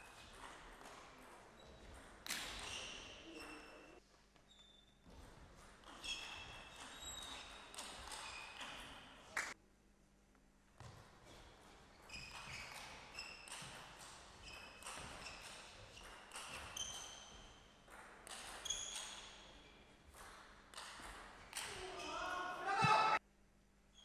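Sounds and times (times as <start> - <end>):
table tennis ball bouncing: 0.1 - 3.8, 12.0 - 22.1.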